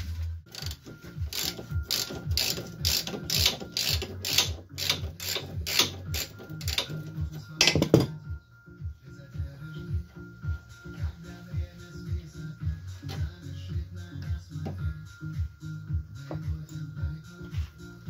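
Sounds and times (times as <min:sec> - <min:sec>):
background music with a beat: 0:00.0 - 0:18.0
ratchet wrench clicking: 0:00.5 - 0:07.1.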